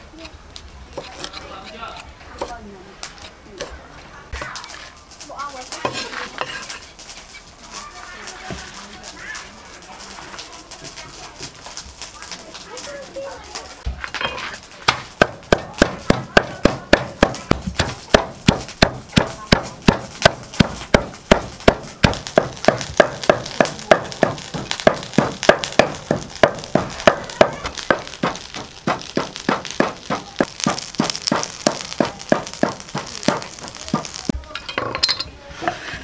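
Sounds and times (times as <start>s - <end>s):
wooden pestle pounding in mortar: 14.9s - 34.3s.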